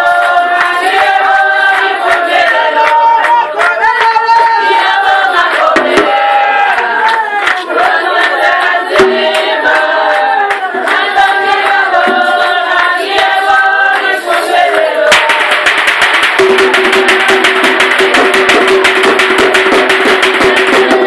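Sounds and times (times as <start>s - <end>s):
group singing: 0.0s - 21.0s
drum beat: 4.4s - 6.7s, 7.7s - 21.0s.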